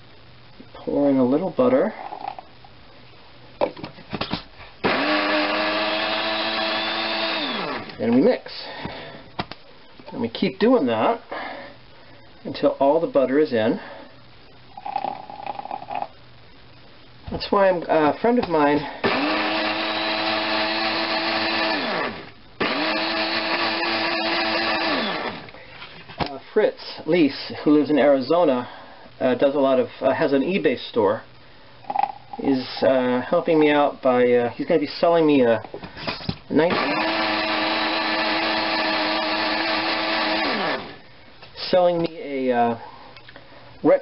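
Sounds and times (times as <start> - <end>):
blender motor running: 4.8 - 8.0, 19.0 - 25.5, 36.7 - 41.0.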